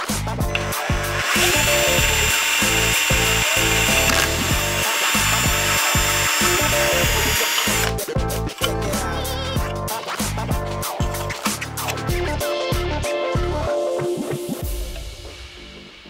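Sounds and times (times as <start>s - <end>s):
background music with beat: 0.0s - 16.0s
power drill running: 0.6s - 8.0s.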